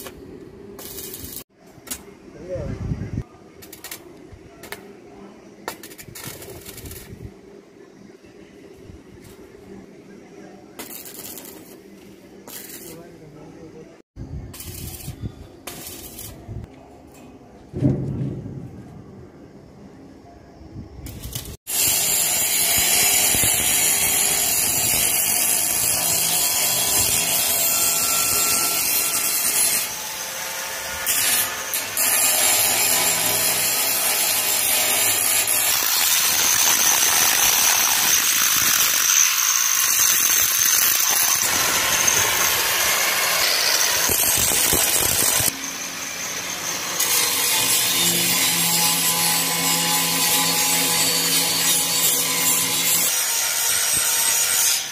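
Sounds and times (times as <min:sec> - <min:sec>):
angle grinder grinding metal: 0:21.1 - 0:54.9.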